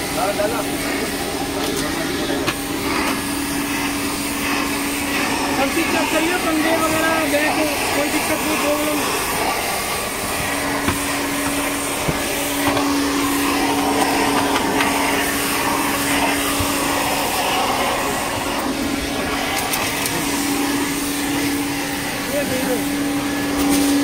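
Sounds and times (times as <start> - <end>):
vacuum cleaner on carpet: 0.0 - 24.0.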